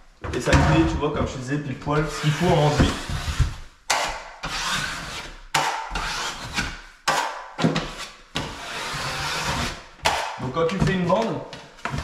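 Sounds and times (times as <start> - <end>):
scraping along plasterboard joint: 2.0 - 10.9.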